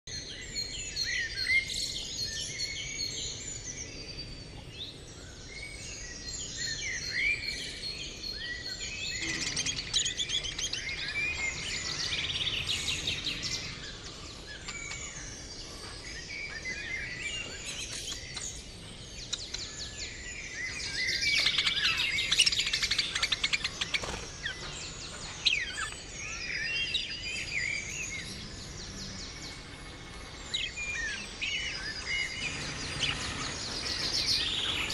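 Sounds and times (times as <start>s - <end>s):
budgerigars chirping and warbling: 8.1s - 34.9s.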